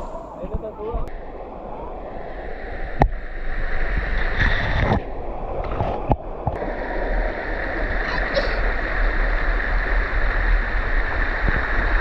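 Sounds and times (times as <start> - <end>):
stream running over stones: 2.8 - 12.0.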